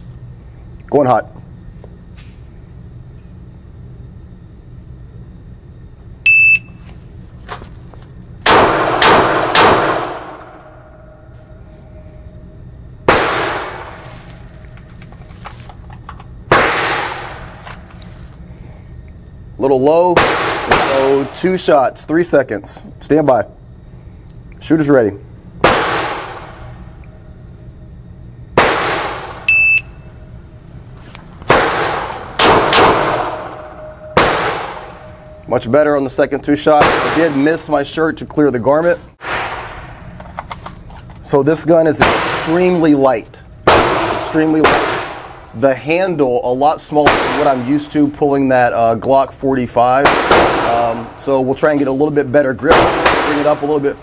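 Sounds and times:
shot timer beep: 0:06.3 - 0:06.7, 0:29.5 - 0:30.1
revolver shots echoing: 0:31.5 - 0:35.2.

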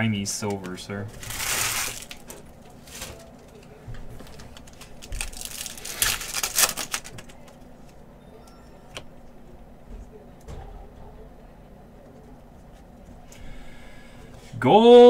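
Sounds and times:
wrapper torn and crinkled: 0:01.1 - 0:03.2, 0:04.6 - 0:07.4.

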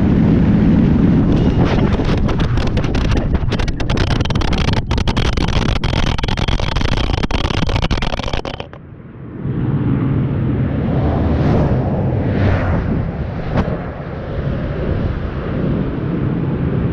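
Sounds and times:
camera scraping along asphalt: 0:01.3 - 0:08.8.

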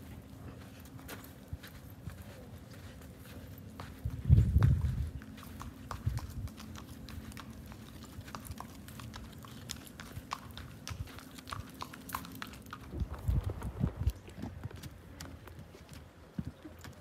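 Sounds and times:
horse hooves clip-clopping on asphalt: 0:02.9 - 0:17.0.

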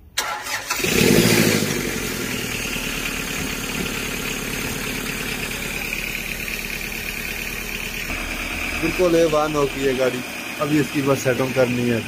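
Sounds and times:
diesel engine idling: 0:00.2 - 0:12.0
man talking: 0:08.7 - 0:12.0.

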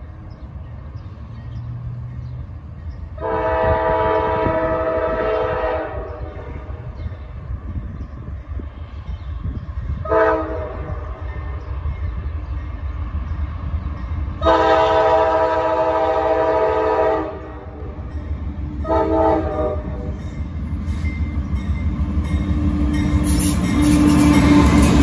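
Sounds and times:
locomotive low rumble: 0:00.0 - 0:25.0
locomotive air horn blasts: 0:03.2 - 0:06.7, 0:10.0 - 0:11.2, 0:14.4 - 0:17.9, 0:18.8 - 0:20.2.

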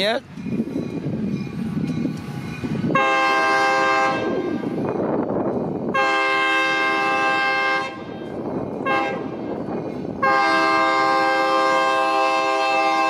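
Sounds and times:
train rumble: 0:00.0 - 0:13.0
locomotive air horn blasts: 0:02.9 - 0:04.8, 0:05.9 - 0:08.2, 0:08.8 - 0:09.5, 0:10.2 - 0:13.0.

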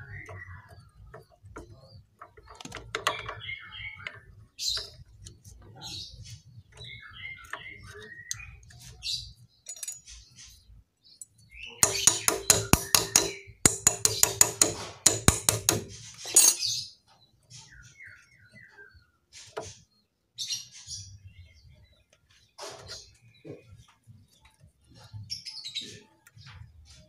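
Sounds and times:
small birds chirping: 0:00.0 - 0:27.0
metal clinking: 0:09.6 - 0:10.2, 0:11.8 - 0:16.8.

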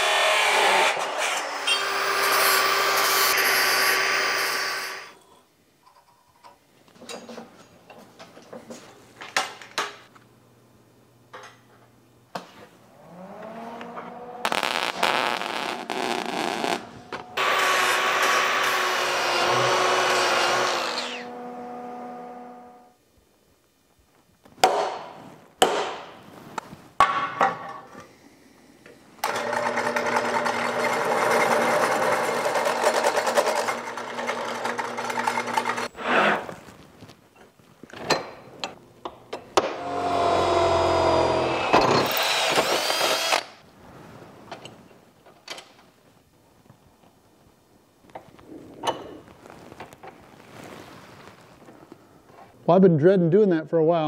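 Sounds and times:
angle grinder cutting steel: 0:00.0 - 0:05.2, 0:17.2 - 0:22.4.

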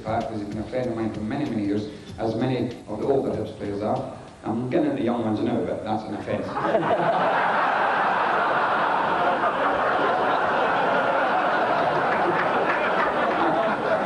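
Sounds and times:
audience laughing: 0:06.6 - 0:14.0.

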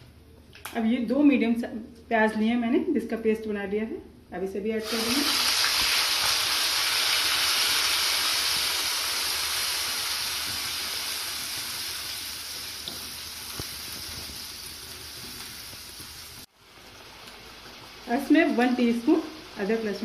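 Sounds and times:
onion paste sizzling: 0:04.8 - 0:20.0.

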